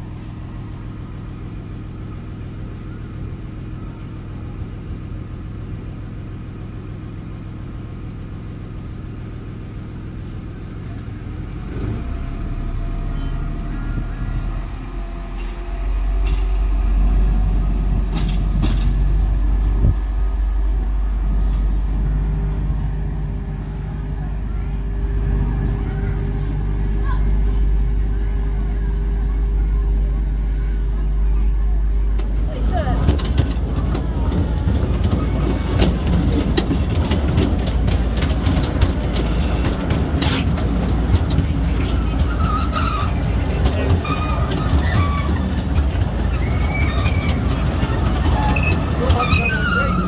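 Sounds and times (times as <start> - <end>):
small locomotive engine running: 0.0 - 50.0.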